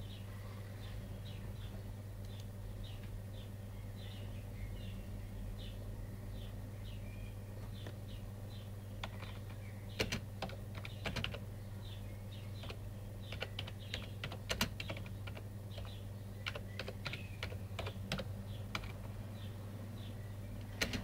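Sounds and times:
bird chirping: 0:00.0 - 0:21.0
steady low hum: 0:00.0 - 0:21.0
keyboard typing clicks: 0:09.0 - 0:11.4, 0:12.6 - 0:19.1, 0:20.6 - 0:21.0.

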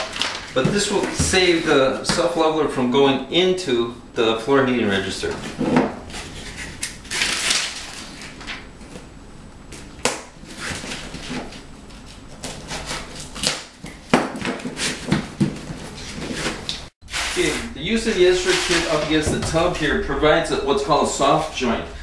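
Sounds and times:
rustling and handling noise: 0:00.0 - 0:02.4, 0:05.2 - 0:22.0
rasping scrape: 0:16.0 - 0:19.9.

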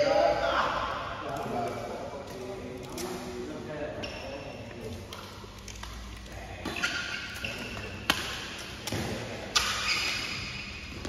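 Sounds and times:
shoes squeaking on court: 0:04.0 - 0:04.6, 0:05.8 - 0:11.0
racket hitting shuttlecock: 0:06.6 - 0:11.0.

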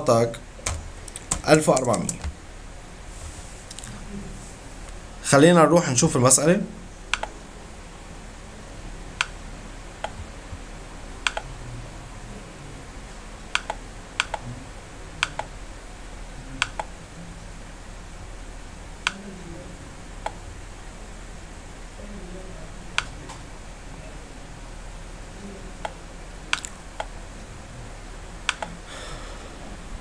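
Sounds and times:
steady low hum: 0:00.0 - 0:30.0
computer mouse clicking: 0:00.6 - 0:02.4, 0:07.1 - 0:07.3, 0:10.0 - 0:10.3, 0:11.2 - 0:11.5, 0:13.5 - 0:14.4, 0:15.2 - 0:15.5, 0:16.6 - 0:16.9, 0:19.0 - 0:19.2, 0:25.8 - 0:27.1, 0:28.5 - 0:28.8.

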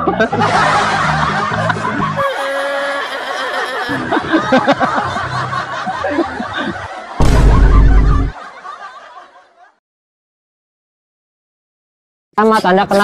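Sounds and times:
loud bass blast: 0:07.2 - 0:08.3.

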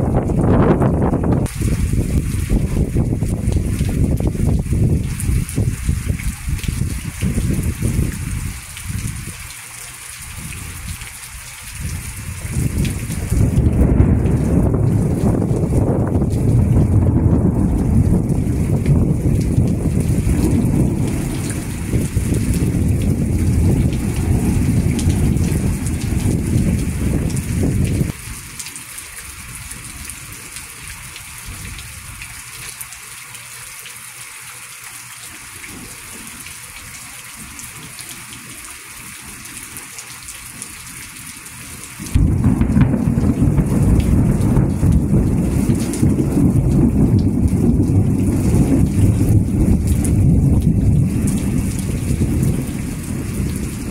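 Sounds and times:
rain falling: 0:00.0 - 0:53.9
heavy low rumble: 0:12.5 - 0:28.2, 0:42.2 - 0:53.9.

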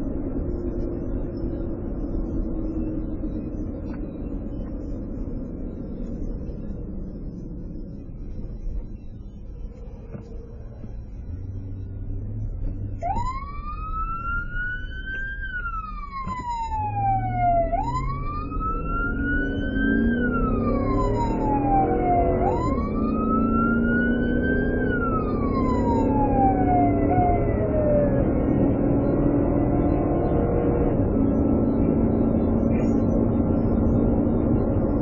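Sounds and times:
vehicle engine and road noise: 0:00.0 - 0:35.0
emergency siren wailing: 0:12.9 - 0:35.0.

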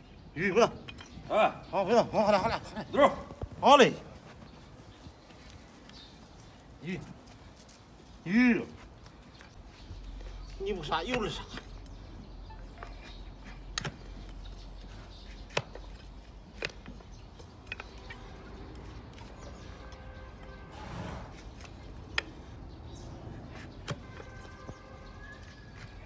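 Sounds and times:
blade chopping hoof horn: 0:19.7 - 0:21.5, 0:23.8 - 0:25.9.

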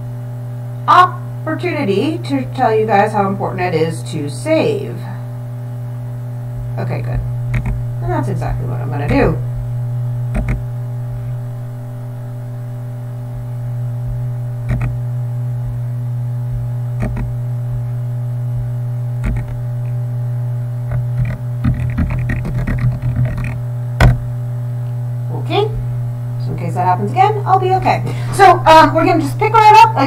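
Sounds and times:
electrical mains hum: 0:00.0 - 0:30.0
computer mouse clicks: 0:07.5 - 0:07.8, 0:10.3 - 0:10.6, 0:14.7 - 0:15.0, 0:17.0 - 0:17.3, 0:19.2 - 0:19.6
keyboard typing: 0:10.3 - 0:10.6, 0:14.7 - 0:14.9, 0:17.0 - 0:17.3, 0:19.2 - 0:19.6, 0:21.2 - 0:23.6.

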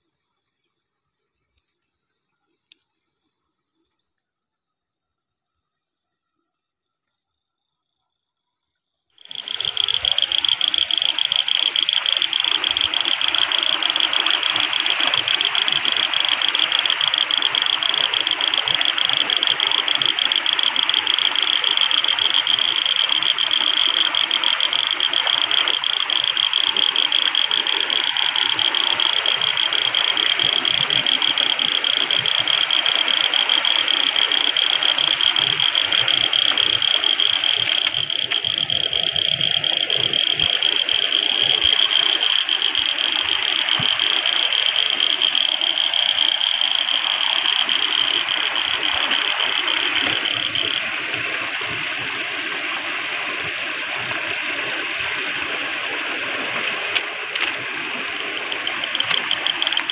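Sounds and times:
high-pitched pulsing buzz: 0:09.2 - 0:51.8, 0:55.7 - 0:59.9
water rushing down a channel: 0:09.2 - 0:59.9.

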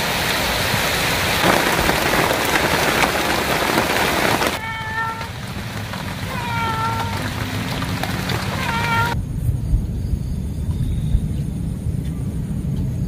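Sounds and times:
rain falling on water: 0:00.0 - 0:09.2.

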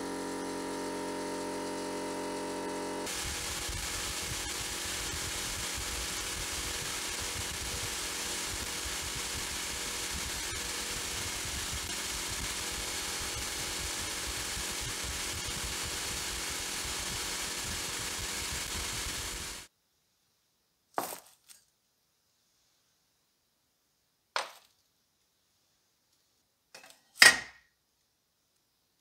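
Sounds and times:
sandblasting gun hissing: 0:00.0 - 0:19.7.

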